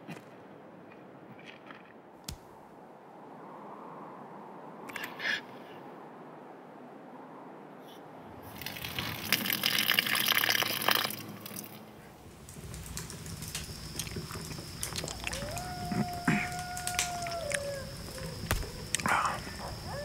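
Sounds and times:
water pouring and gurgling: 8.5s - 16.3s.

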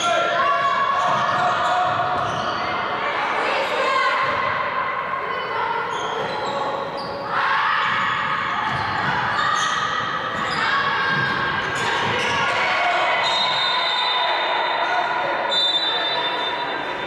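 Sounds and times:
sports shoes squeaking: 0.0s - 3.0s, 5.8s - 17.0s.

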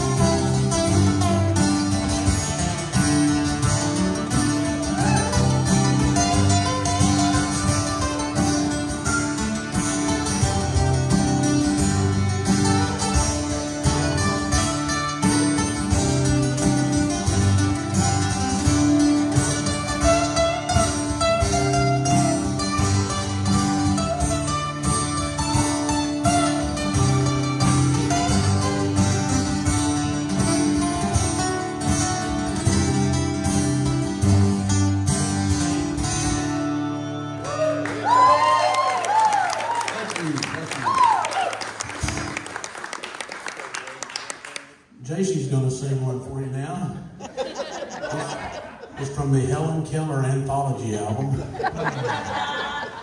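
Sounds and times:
strummed acoustic guitars: 0.0s - 38.3s.

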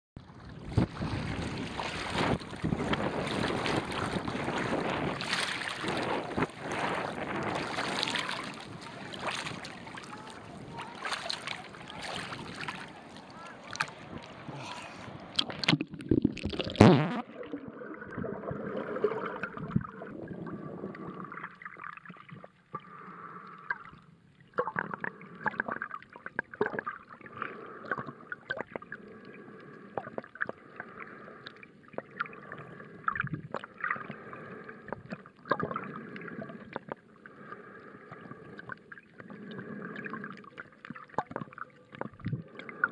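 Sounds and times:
water splashing and sloshing: 0.2s - 42.9s
muffled underwater gurgling: 0.5s - 24.0s, 24.6s - 42.9s
loud splash: 0.7s - 13.9s
underwater clicks: 15.3s - 17.2s, 38.6s - 42.9s.

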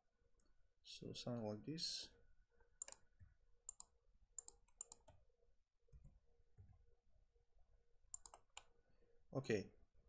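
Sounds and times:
mouse and keyboard clicks: 2.8s - 3.1s, 3.7s - 5.2s, 8.1s - 8.7s.

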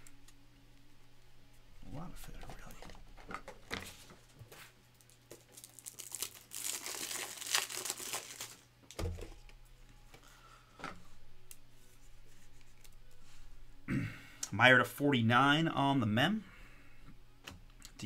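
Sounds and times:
plastic crinkling and rustling: 2.4s - 9.4s.

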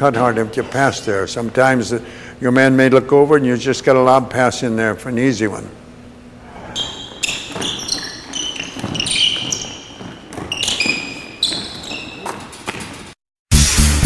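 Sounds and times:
sneakers squeaking on hardwood: 6.2s - 13.2s
thuds of feet and ball: 6.8s - 13.2s.

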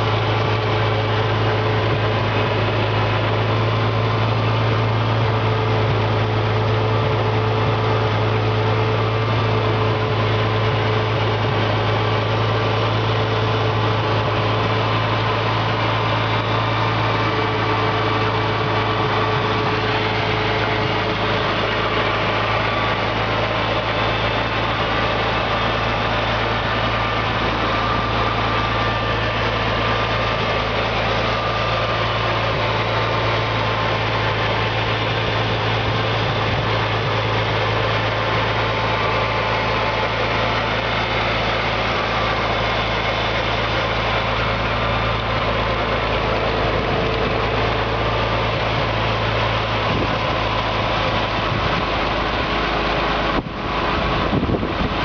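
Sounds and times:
tractor engine running steadily: 0.0s - 55.0s.

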